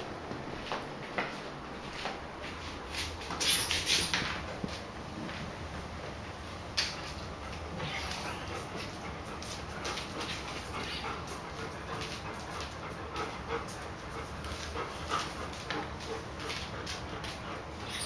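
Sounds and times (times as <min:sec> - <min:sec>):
dogs panting: 0:05.6 - 0:18.0.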